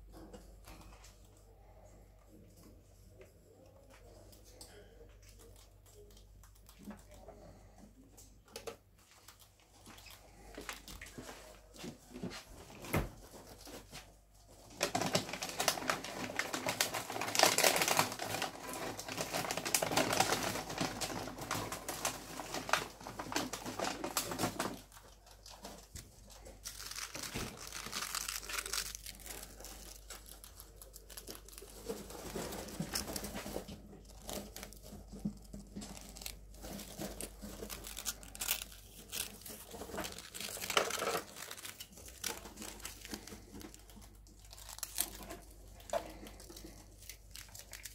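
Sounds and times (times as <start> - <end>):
rats scrabbling through bedding: 8.8 - 47.9.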